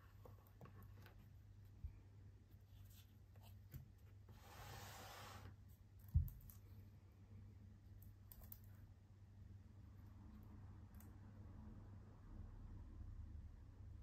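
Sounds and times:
box sliding across wooden table: 0:04.3 - 0:05.6.

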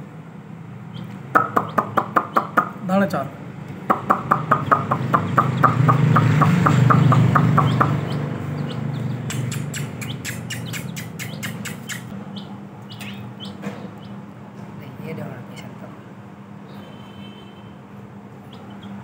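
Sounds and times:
chicks peeping: 0:00.9 - 0:02.8, 0:03.9 - 0:14.2, 0:18.4 - 0:19.0
beaks pecking steel dish: 0:03.9 - 0:12.1.

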